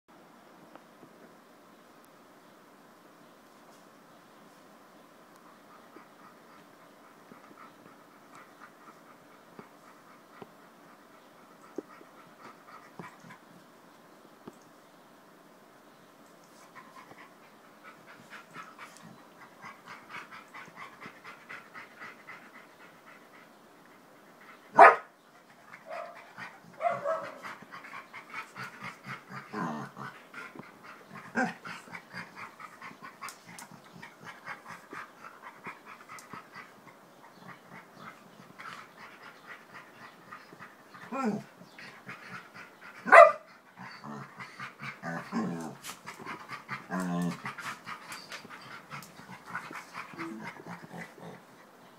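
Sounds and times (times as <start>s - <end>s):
dogs panting: 5.4s - 13.6s, 16.5s - 51.8s
dog barking: 24.8s - 25.1s, 25.9s - 26.2s, 26.8s - 27.4s, 43.1s - 43.4s.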